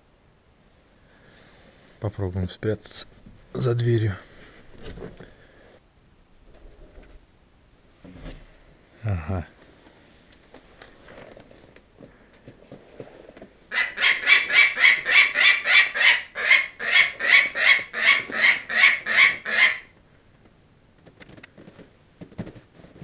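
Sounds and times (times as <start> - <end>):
falcon calling: 13.7 - 19.9.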